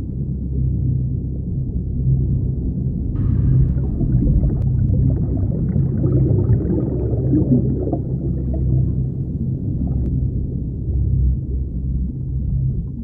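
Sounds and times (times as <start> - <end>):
underwater rumble: 0.0 - 13.0
bubbling: 3.2 - 10.1.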